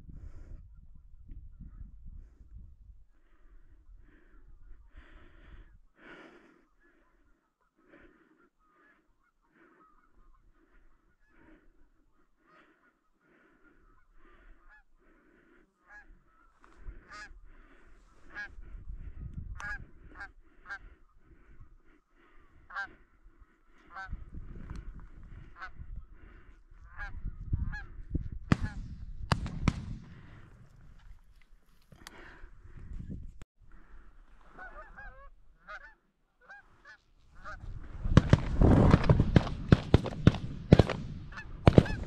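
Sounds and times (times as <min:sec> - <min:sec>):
wind rumble on microphone: 0:00.0 - 0:05.8, 0:16.7 - 0:21.8, 0:23.9 - 0:31.4, 0:32.2 - 0:33.4, 0:37.3 - 0:42.0
goose honking: 0:22.7 - 0:23.0, 0:34.5 - 0:37.6, 0:41.3 - 0:42.0.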